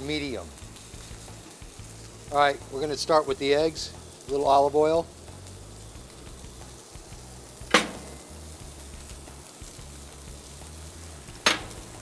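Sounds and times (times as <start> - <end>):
food sizzling on grill: 0.0 - 12.0
sharp click: 7.7 - 8.2.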